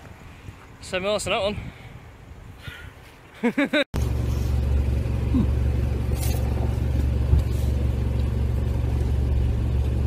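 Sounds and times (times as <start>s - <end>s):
car engine droning: 4.0s - 10.0s.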